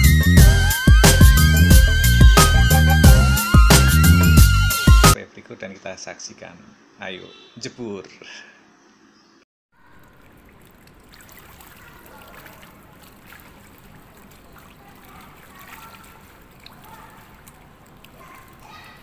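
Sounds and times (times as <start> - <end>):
pool water splashing: 9.8 - 19.0.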